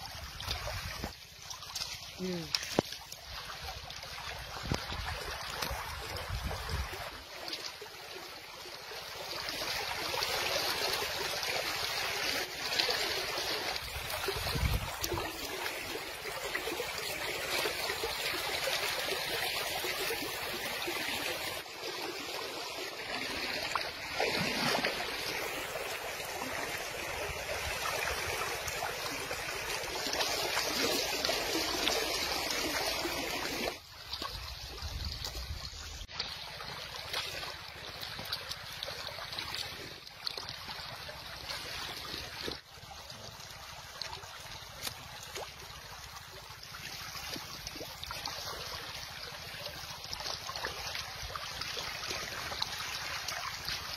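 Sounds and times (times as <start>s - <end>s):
river water rushing: 5.1s - 33.9s.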